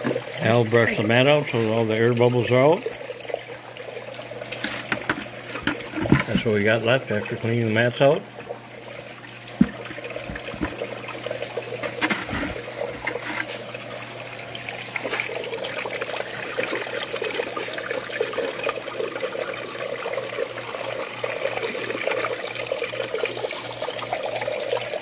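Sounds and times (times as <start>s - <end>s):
water splashing down metal sluice: 4.3s - 22.5s
knocks: 9.6s - 10.8s.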